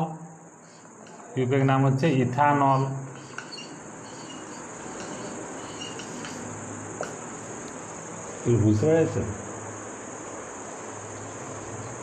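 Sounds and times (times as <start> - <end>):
background hiss: 0.0 - 12.0
high-pitched insect-like trill: 0.6 - 9.3.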